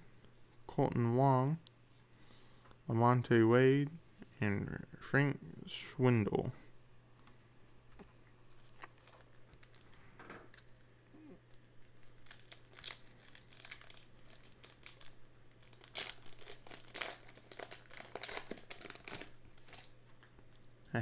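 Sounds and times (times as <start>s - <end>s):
wrapper crinkling and tearing: 8.5s - 10.8s, 11.5s - 20.0s.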